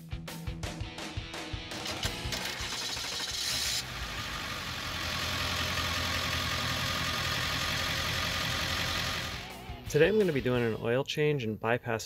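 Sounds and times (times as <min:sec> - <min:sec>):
diesel engine idling: 0:02.3 - 0:09.7.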